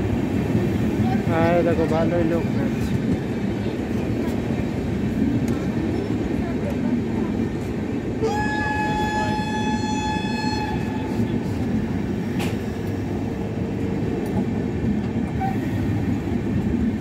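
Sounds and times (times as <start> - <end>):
train rumbling past: 0.0 - 17.0
train horn blast: 8.2 - 11.7.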